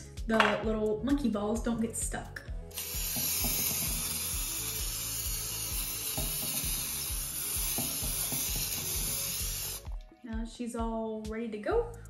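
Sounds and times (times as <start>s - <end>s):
cooking spray hissing: 2.7s - 10.0s.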